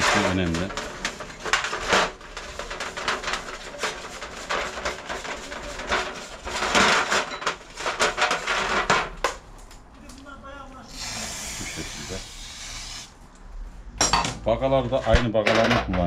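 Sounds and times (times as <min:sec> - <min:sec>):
wire brush scrubbing metal: 0:00.0 - 0:09.0.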